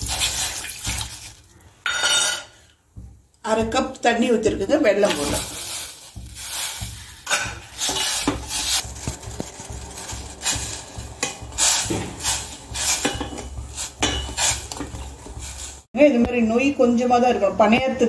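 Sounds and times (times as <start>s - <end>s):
spatula scraping metal pot: 3.6s - 15.9s.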